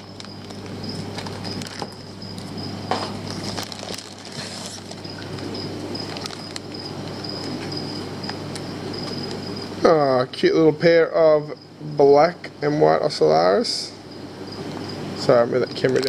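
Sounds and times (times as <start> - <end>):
plastic bags rustling and crinkling: 0.0 - 7.7, 15.8 - 16.0.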